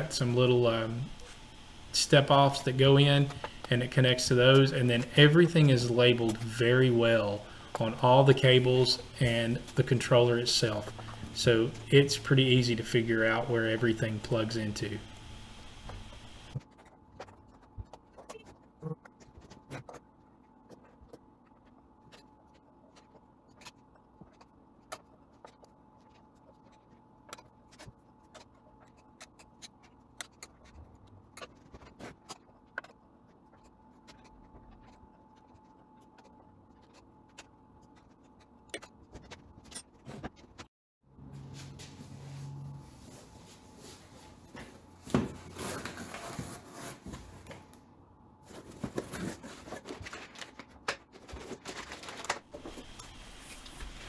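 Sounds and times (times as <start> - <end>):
faint steady hum: 0.0 - 40.6.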